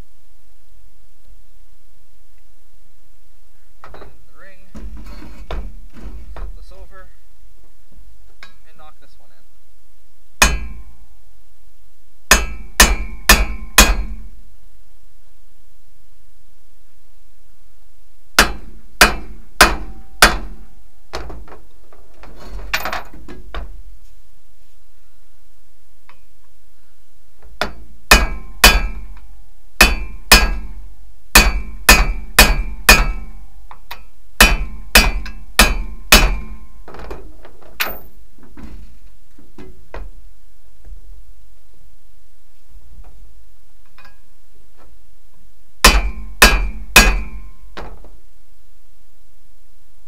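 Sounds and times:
hammer ringing on steel: 10.4 - 10.9, 12.3 - 14.2, 28.1 - 29.1, 29.8 - 30.8, 31.4 - 33.5, 34.4 - 36.7, 45.8 - 47.6
light metal clinking: 37.7 - 38.2.

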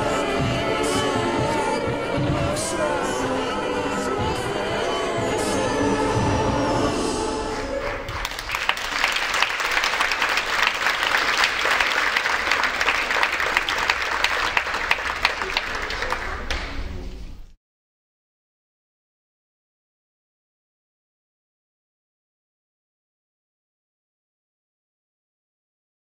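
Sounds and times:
stage music: 0.0 - 17.2
audience applauding: 7.6 - 17.0.

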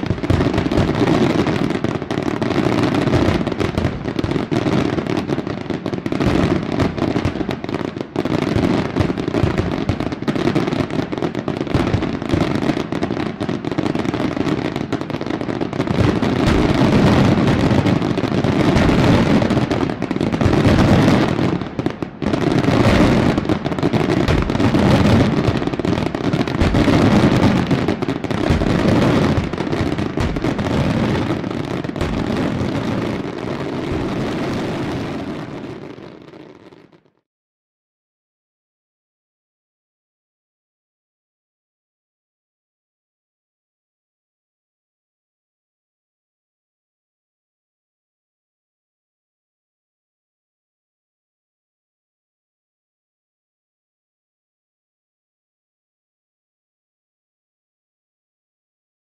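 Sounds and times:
fireworks bursting and crackling: 0.0 - 37.2.

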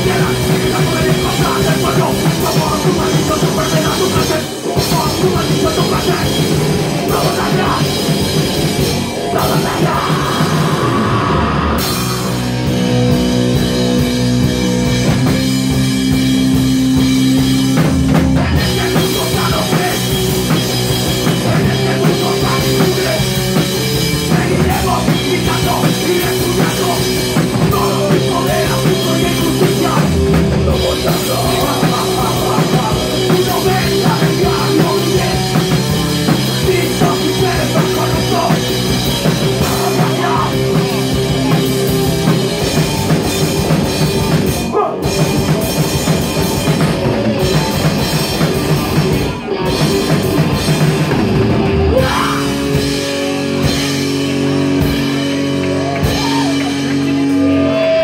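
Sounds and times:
vocals into microphone: 0.0 - 12.4, 18.1 - 41.7, 44.6 - 45.2, 51.8 - 52.9
bass guitar: 0.0 - 58.0
distorted electric guitars: 0.0 - 58.0
fast pounding drum kit: 0.0 - 58.0.

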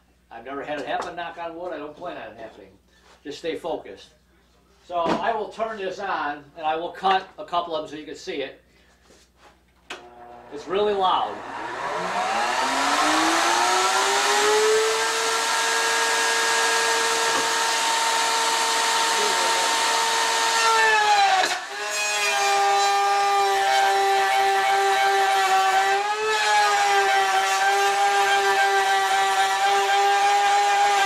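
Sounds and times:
router cutting wood: 9.9 - 31.0
router motor whining: 9.9 - 31.0.

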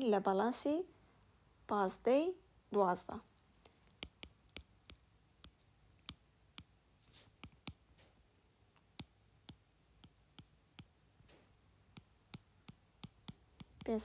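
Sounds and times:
stylus tapping on glass screen: 3.7 - 6.7, 7.3 - 7.9, 8.8 - 14.0.

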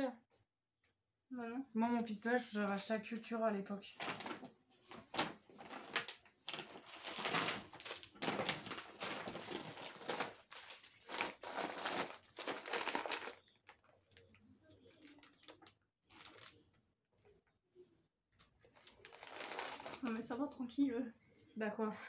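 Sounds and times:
plastic packaging crinkling: 4.0 - 16.6, 18.7 - 20.3.

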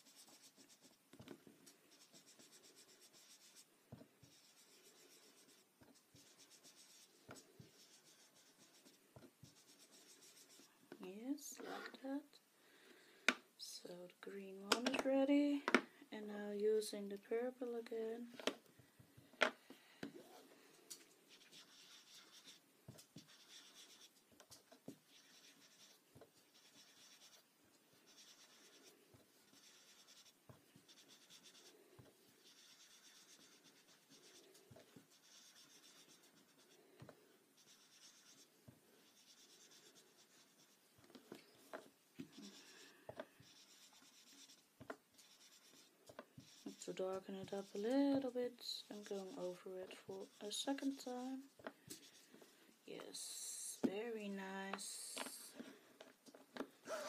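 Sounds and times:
foam pad rubbing on paper: 37.6 - 40.8.

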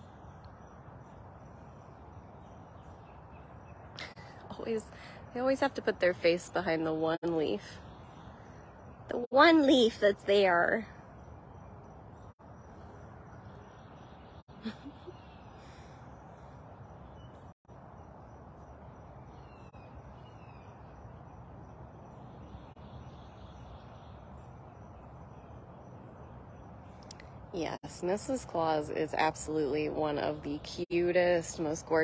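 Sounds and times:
outdoor background noise: 0.0 - 32.0
faint bird calls: 10.8 - 17.6.

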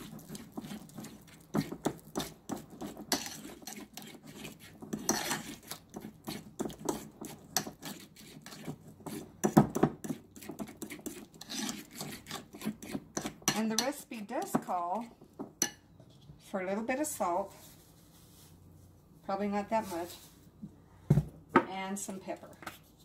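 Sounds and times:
metal utensil stirring in bowl: 0.0 - 15.8.

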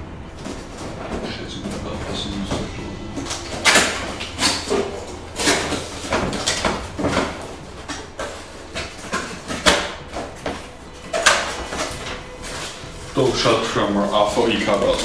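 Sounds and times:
cardboard box scraping and rustling: 5.4 - 15.0.

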